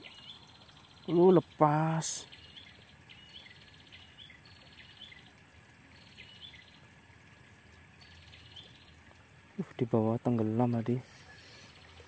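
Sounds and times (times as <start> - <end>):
bird calls ticking trill: 0.0 - 9.3.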